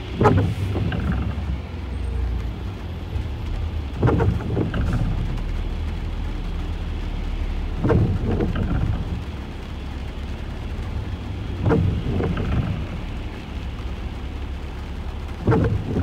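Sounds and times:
car engine idling: 0:00.0 - 0:16.0
rain on glass: 0:00.0 - 0:16.0
windscreen wipers swishing: 0:00.0 - 0:16.0.

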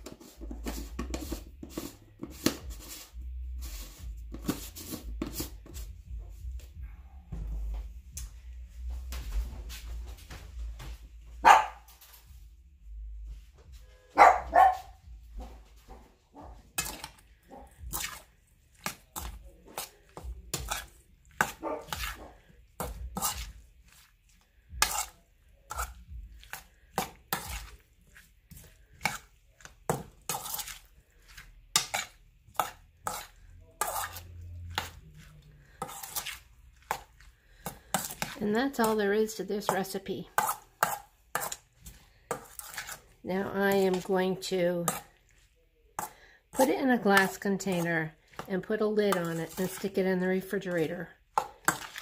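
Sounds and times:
utensil scraping metal bowl: 0:00.0 - 0:05.8, 0:16.6 - 0:45.4, 0:46.0 - 0:52.0.

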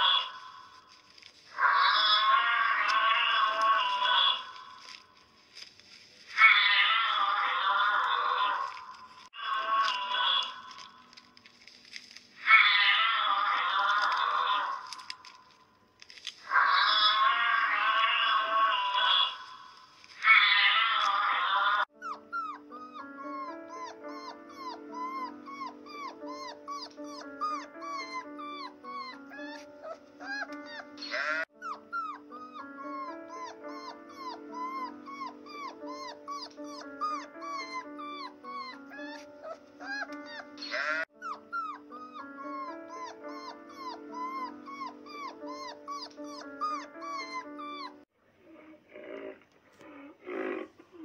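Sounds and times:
puppies squeaking and whimpering: 0:20.3 - 0:48.1.

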